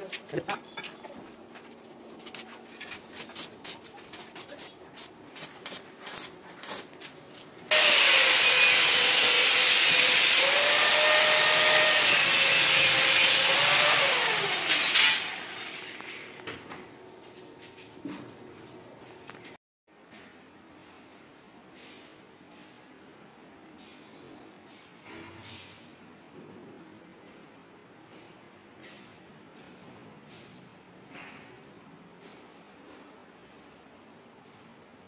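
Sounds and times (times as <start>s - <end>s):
angle grinder cutting metal: 7.7s - 16.4s.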